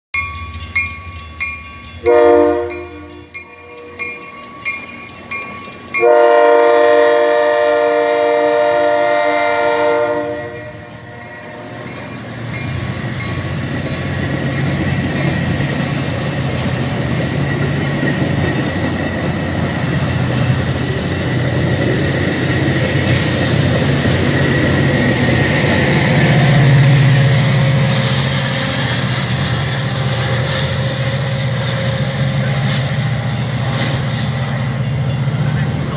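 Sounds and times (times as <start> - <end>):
station bell dinging: 0.1 - 8.3, 9.8 - 18.4
train wheel noise: 0.1 - 35.9
train horn blast: 2.0 - 4.0, 6.0 - 11.9
locomotive engine rumble: 8.7 - 35.9.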